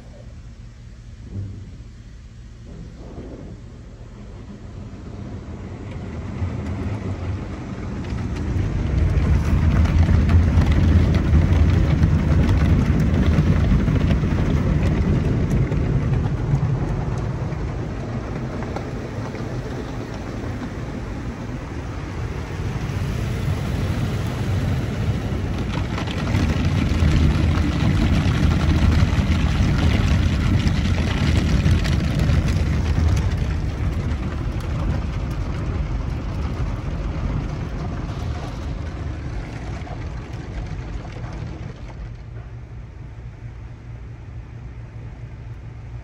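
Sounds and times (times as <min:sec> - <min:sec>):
car wash spraying and scrubbing: 0:00.0 - 0:46.0.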